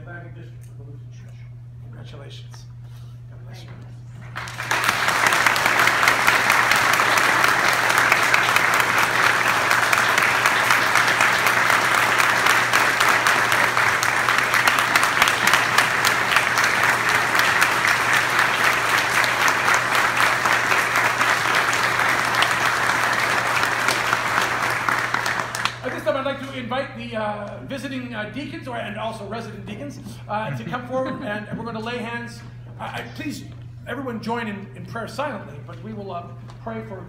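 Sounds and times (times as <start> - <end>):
congregation applauding: 4.2 - 26.4.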